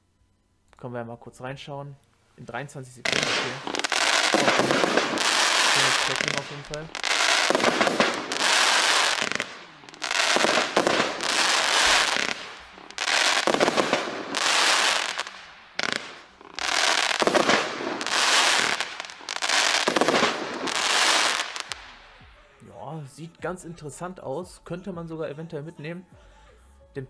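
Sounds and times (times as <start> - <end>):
firework battery crackle and bangs: 3.0 - 22.2.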